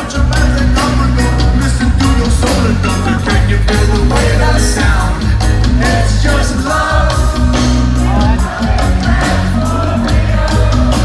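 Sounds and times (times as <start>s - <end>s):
man singing into microphone: 0.0s - 8.8s
heavy bass line: 0.0s - 11.0s
live reggae band playing: 0.0s - 11.0s.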